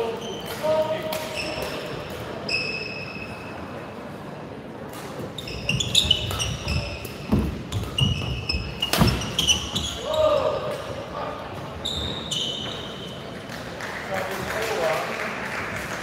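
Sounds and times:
shoes squeaking on floor: 0.1s - 3.4s, 5.2s - 10.5s, 11.8s - 13.2s.

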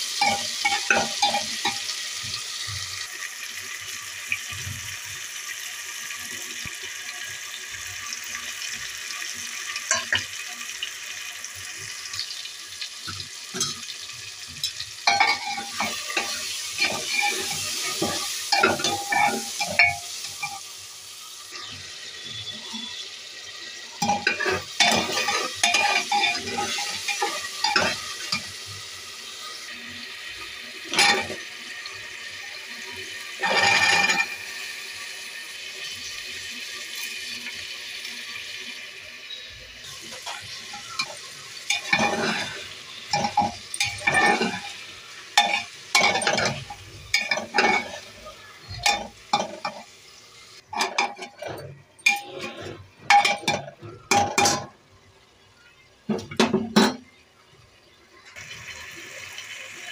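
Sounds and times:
oil sizzling in a pot: 0.0s - 59.9s
metal spoon scraping a pot: 14.7s - 20.6s, 24.0s - 28.5s, 33.4s - 34.4s, 40.1s - 44.8s, 45.4s - 49.8s, 50.7s - 54.7s.

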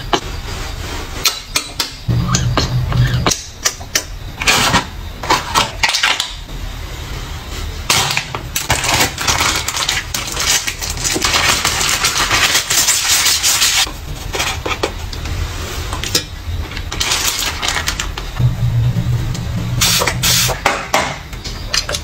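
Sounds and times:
crinkling and rubbing packaging: 0.0s - 1.3s, 6.8s - 18.4s.

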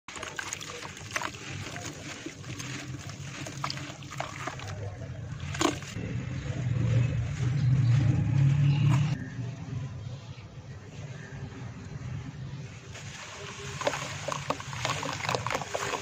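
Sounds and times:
hands crumbling wet dirt: 0.1s - 6.0s
low rumble: 4.9s - 13.8s.

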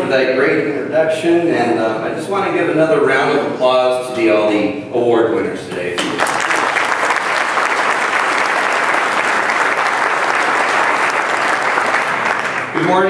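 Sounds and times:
audience clapping: 6.0s - 13.0s.

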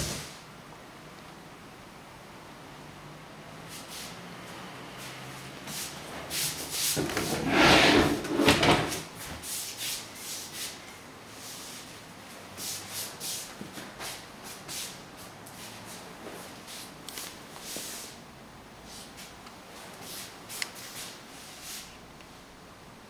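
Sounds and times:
rubbing sliding sound: 5.8s - 10.8s.

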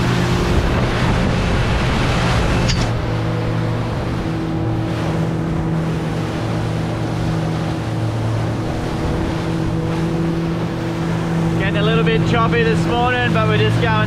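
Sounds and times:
outboard motor humming: 0.0s - 14.0s
water splashing against hull: 0.0s - 14.0s.

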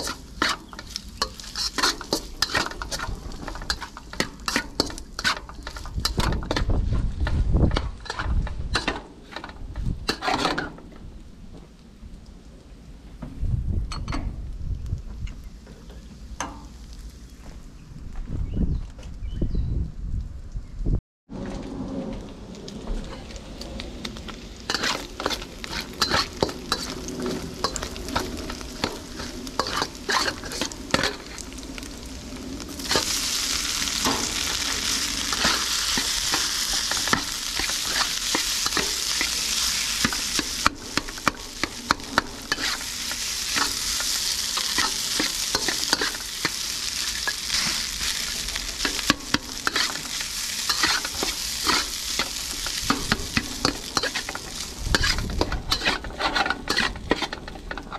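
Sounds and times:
food sizzling in a wok: 0.0s - 8.9s, 24.3s - 57.7s
utensil clacking and scraping pan: 0.0s - 10.8s, 24.7s - 32.0s, 32.7s - 57.9s.

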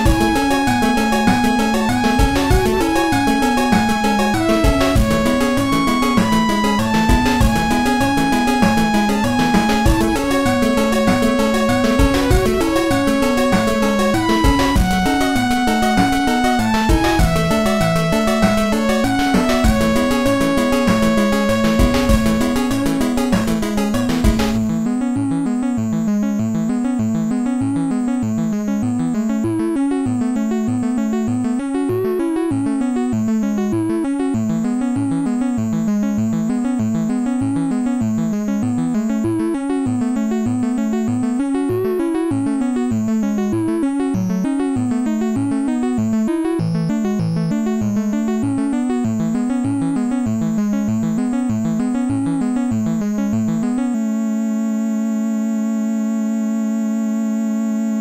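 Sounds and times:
synthesizer line wavering in pitch: 0.0s - 24.8s
held synthesizer chord: 0.0s - 35.5s
fast electronic pulse: 0.1s - 24.8s.

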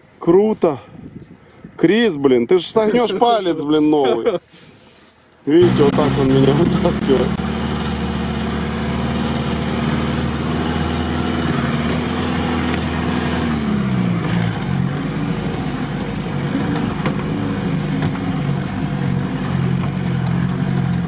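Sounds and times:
vehicle engine running unevenly: 5.6s - 21.0s.

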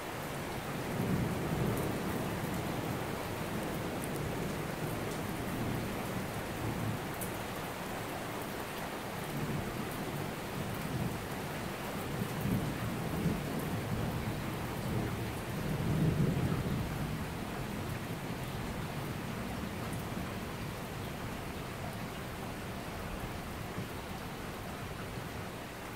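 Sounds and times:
heavy rain on pavement: 0.0s - 25.9s
low rolling thunder: 12.1s - 20.4s.

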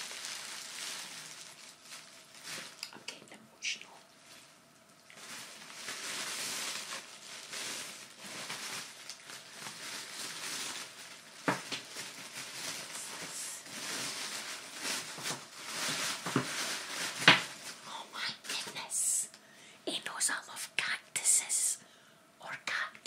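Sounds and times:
gift wrapping crinkling: 0.0s - 3.0s, 3.8s - 18.9s.

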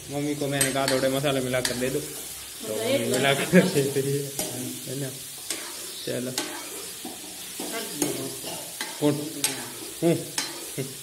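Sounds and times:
vegetables sizzling: 0.0s - 11.0s
spoon stirring vegetables: 5.2s - 11.0s.

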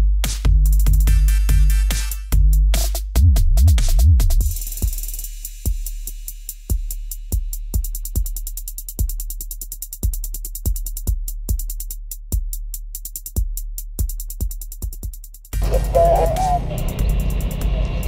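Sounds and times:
fast hi-hat ticks: 4.4s - 16.0s, 16.6s - 18.0s
held low bass note: 15.6s - 17.1s.

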